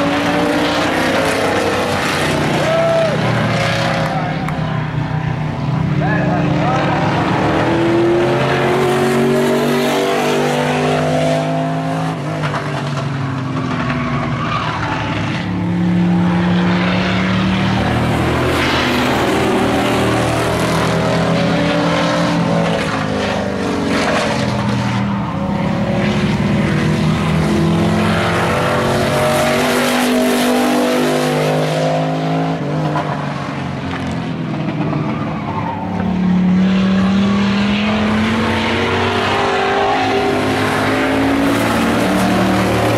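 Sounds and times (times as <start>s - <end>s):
race truck engines: 0.0s - 42.9s.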